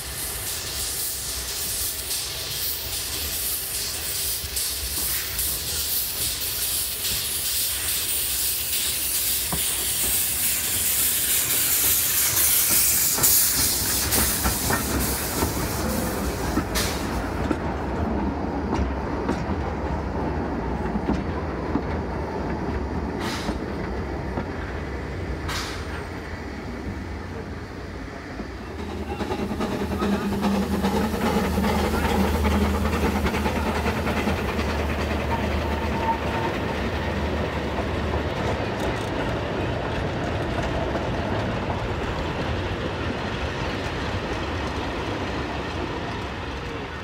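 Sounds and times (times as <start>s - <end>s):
rail joint clicks: 0.0s - 47.0s
steam locomotive hissing: 0.0s - 47.0s
freight wagons rumbling by: 27.0s - 47.0s.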